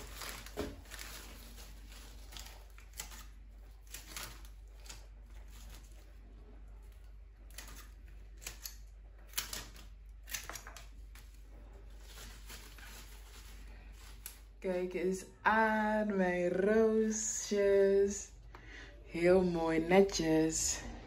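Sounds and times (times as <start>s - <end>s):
flower shears snipping: 0.0s - 6.0s, 7.5s - 11.2s
stems and leaves rustling: 0.0s - 15.9s.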